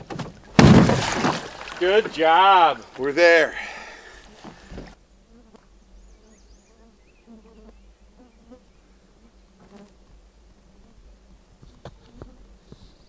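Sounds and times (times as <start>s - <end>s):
knocks: 0.0s - 1.5s
flying insect buzzing: 4.1s - 13.0s.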